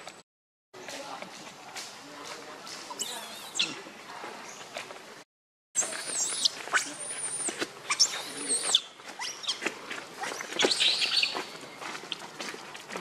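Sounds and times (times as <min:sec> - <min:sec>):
baby monkey squealing cries: 0:03.0 - 0:03.7, 0:05.8 - 0:09.6.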